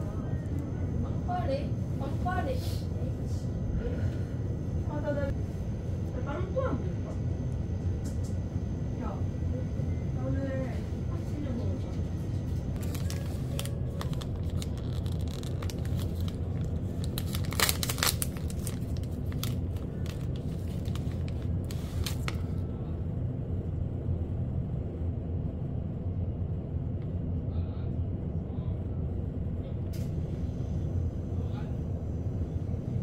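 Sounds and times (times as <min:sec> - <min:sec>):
low background rumble: 0:00.0 - 0:33.0
plastic wrapper crinkling: 0:12.8 - 0:22.4.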